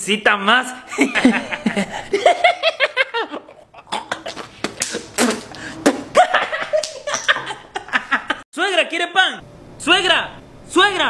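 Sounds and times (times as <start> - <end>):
man laughing: 0.9 - 8.4
breathy noises: 3.8 - 6.1.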